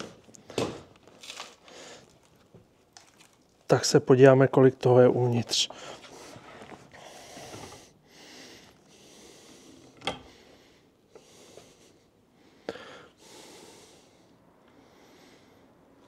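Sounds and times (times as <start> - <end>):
person breathing: 1.6 - 2.1, 5.7 - 16.0.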